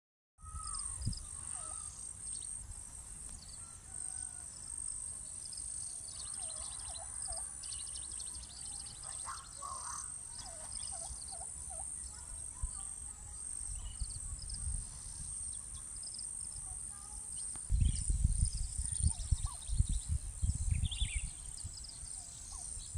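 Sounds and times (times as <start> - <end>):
wind rumble on microphone: 0.4 - 1.7, 13.6 - 15.9, 17.6 - 22.9
birds whistling and chirping: 0.4 - 2.6, 5.8 - 15.9, 17.4 - 22.9.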